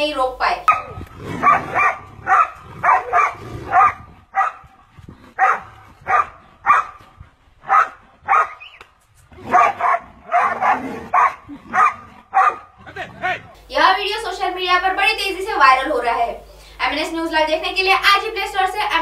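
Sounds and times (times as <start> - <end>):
dog barking: 0.7 - 4.7, 5.4 - 7.0, 7.7 - 8.8, 9.5 - 12.8.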